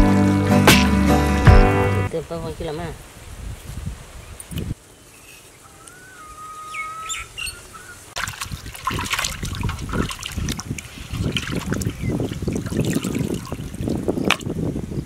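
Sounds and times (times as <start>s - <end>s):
bird chirping: 4.3s - 8.1s
water splashing in clay pot: 8.2s - 14.6s.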